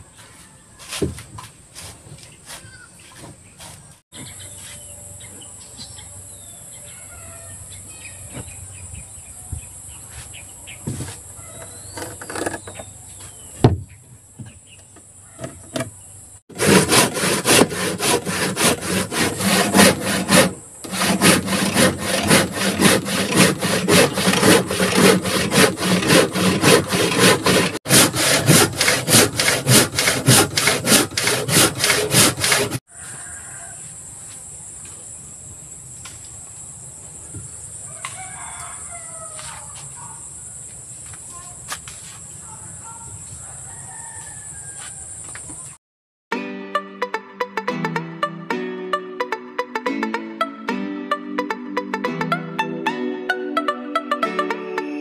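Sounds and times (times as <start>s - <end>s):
hand saw cutting wood: 16.5s - 32.9s.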